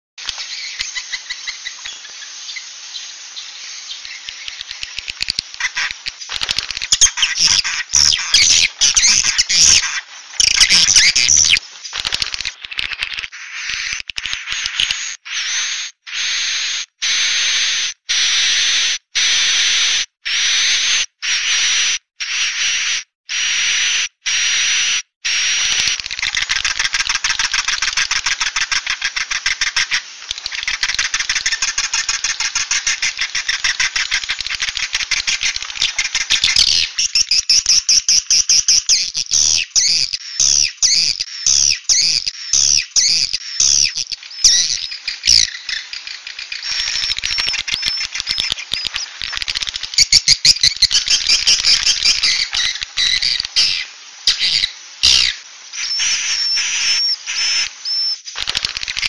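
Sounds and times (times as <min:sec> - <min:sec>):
bird chirps and clicks: 0:00.2 - 0:02.6, 0:03.9 - 0:15.2, 0:25.7 - 0:59.0
rapid buzzing bird twitter: 0:00.2 - 0:59.0
swiftlet calls: 0:00.2 - 0:59.0.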